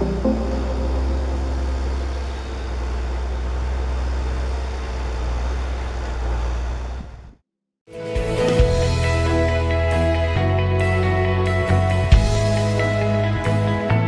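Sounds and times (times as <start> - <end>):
tractor engine running: 0.0 - 7.4.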